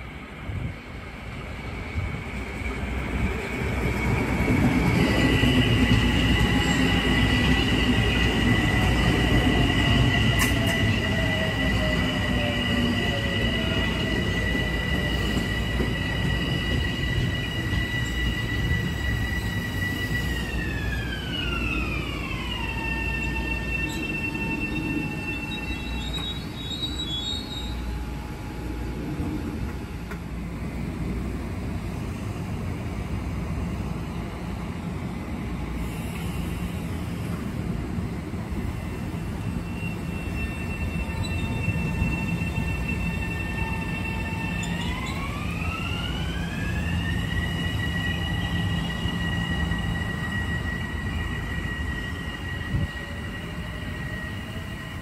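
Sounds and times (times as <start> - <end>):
train running past: 0.0 - 55.0
high-pitched squeal: 2.4 - 27.9.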